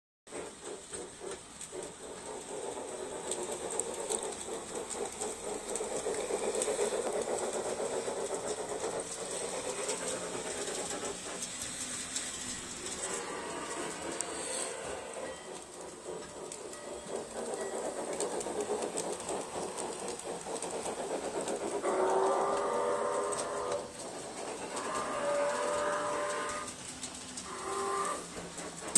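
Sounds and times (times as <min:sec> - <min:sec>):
model train motor whirring: 0:00.3 - 0:28.9
wheels clicking on rails: 0:00.3 - 0:28.9.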